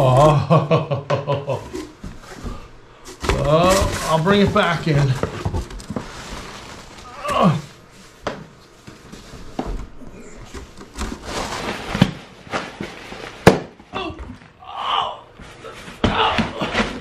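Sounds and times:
cardboard scraping and rustling: 1.6s - 13.6s, 15.4s - 17.0s.

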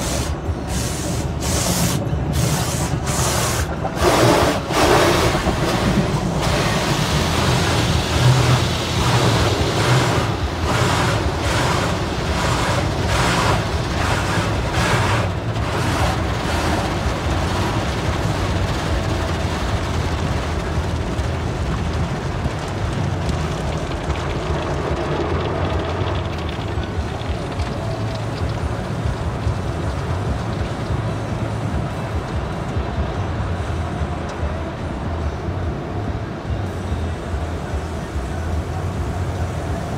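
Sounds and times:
wash brushes slapping car: 0.0s - 30.8s
car wash water spray: 0.0s - 35.9s.

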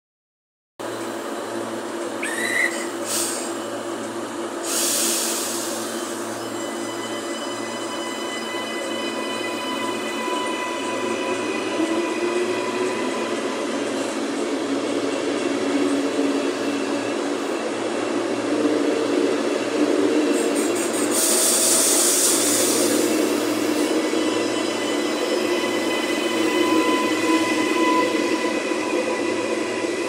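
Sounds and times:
train wheels rumbling on rails: 0.8s - 30.0s
loud hiss: 2.3s - 3.6s, 4.6s - 6.2s, 20.3s - 23.8s.

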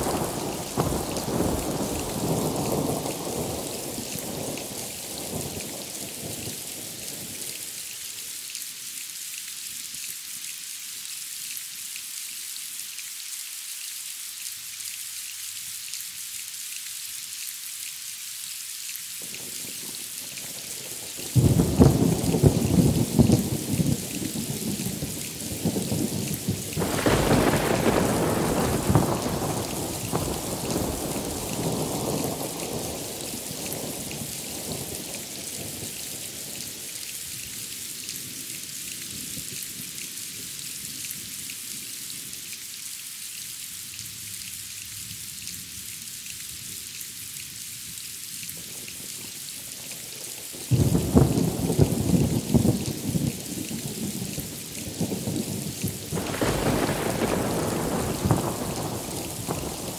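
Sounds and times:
heavy rain: 0.0s - 59.9s
thunder cracking and rumbling: 21.4s - 33.1s, 55.1s - 59.9s.

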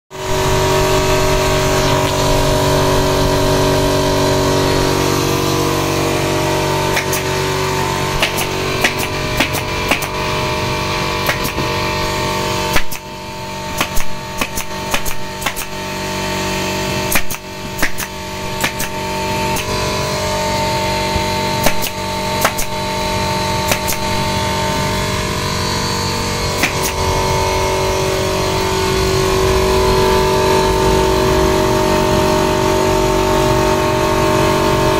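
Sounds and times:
air compressor humming: 0.1s - 34.9s
pneumatic stapler shots: 6.9s - 7.4s, 8.2s - 10.2s, 11.2s - 11.8s, 12.7s - 16.0s, 17.0s - 19.8s, 21.2s - 23.0s, 23.6s - 24.3s, 26.5s - 27.1s.

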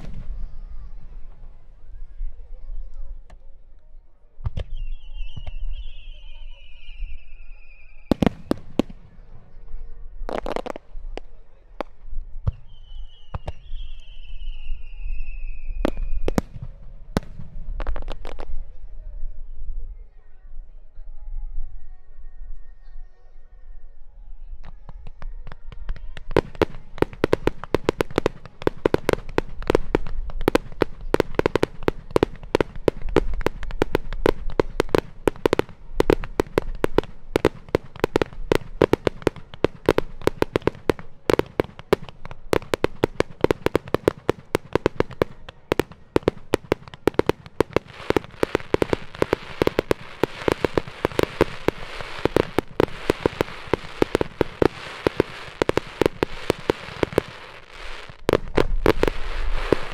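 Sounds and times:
crackling firework stars: 0.0s - 3.5s, 4.4s - 18.8s, 24.6s - 59.9s
firework shells bursting: 26.2s - 59.9s.

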